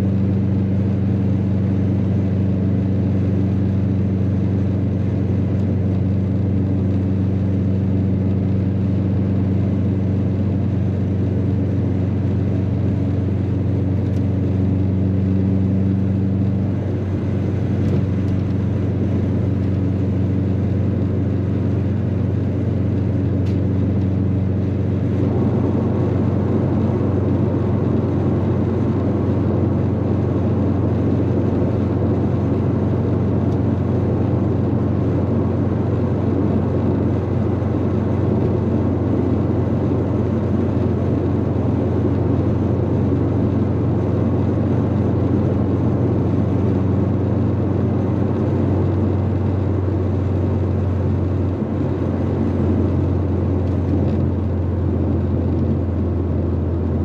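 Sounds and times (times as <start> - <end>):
car engine drone: 0.0 - 57.0
road rumble: 0.0 - 57.0.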